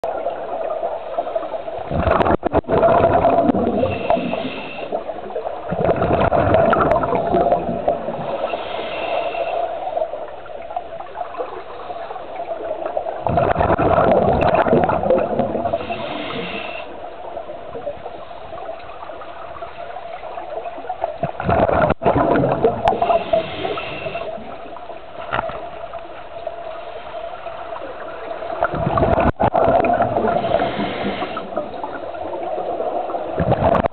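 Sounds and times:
regulator exhaust bubbles gurgling: 1.8s - 8.4s, 12.5s - 16.5s, 17.7s - 26.5s, 28.5s - 33.9s
short breathing hisses: 8.4s - 9.8s, 15.8s - 16.9s, 23.0s - 24.3s, 30.4s - 31.6s.

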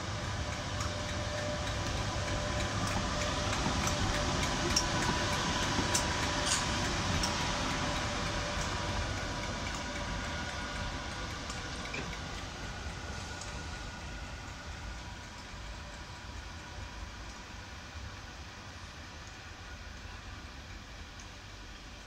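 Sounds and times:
electric locomotive whirring: 0.0s - 22.0s.

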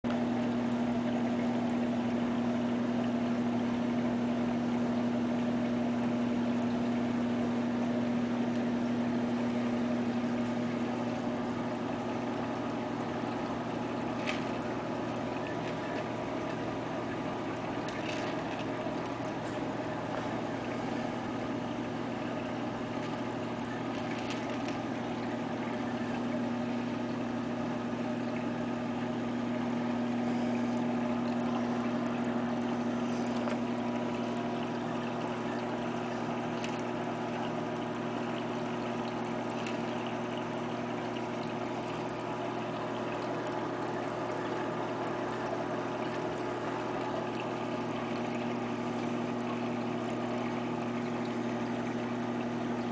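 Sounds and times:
filter pump humming: 0.0s - 52.9s
water trickling and bubbling: 0.1s - 52.9s.

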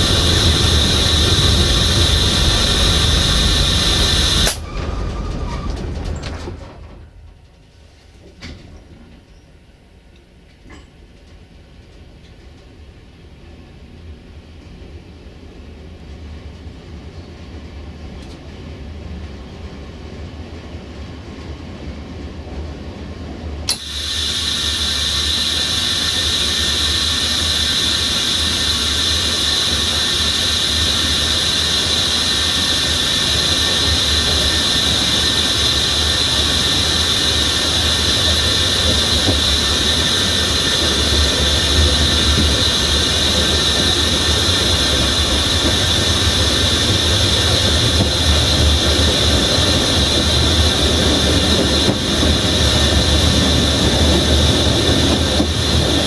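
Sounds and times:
wheels squealing on rail: 0.0s - 7.0s, 23.7s - 56.0s
train rumbling: 0.0s - 56.0s.

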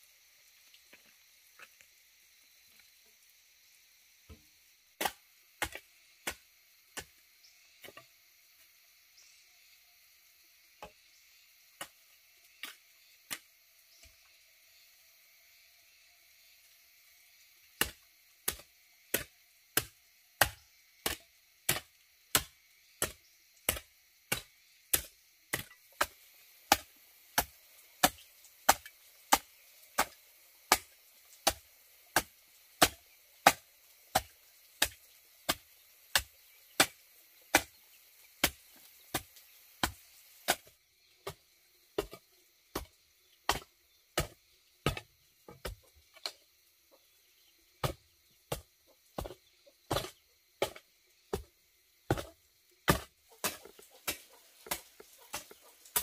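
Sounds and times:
blade chopping wood: 5.0s - 7.2s, 17.8s - 37.8s, 38.4s - 41.4s, 42.0s - 42.9s, 43.5s - 46.4s, 47.8s - 51.5s, 52.1s - 56.0s.

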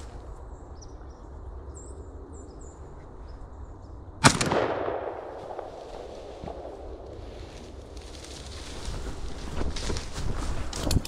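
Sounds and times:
small birds chirping: 0.2s - 4.1s
shotgun shot with echo: 4.2s - 6.9s.

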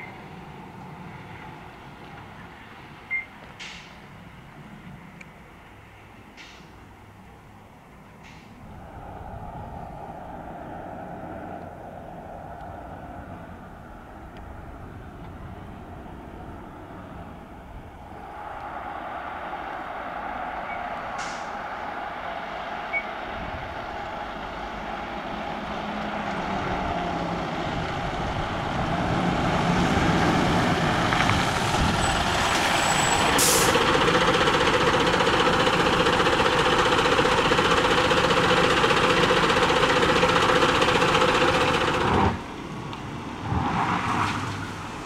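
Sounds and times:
fire engine diesel engine running: 15.3s - 42.7s
brief sharp hiss: 21.1s - 21.7s, 33.4s - 33.8s.

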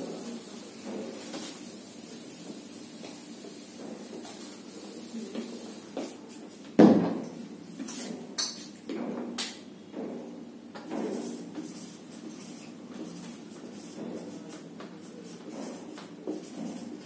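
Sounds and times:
duster rubbing on whiteboard: 0.0s - 6.5s, 11.0s - 17.0s.

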